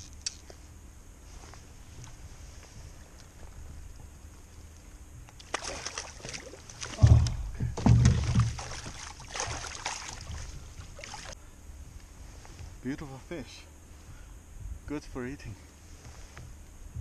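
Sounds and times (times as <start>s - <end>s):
water splashing and sloshing: 5.4s - 11.4s
heavy low thumps: 6.9s - 9.6s.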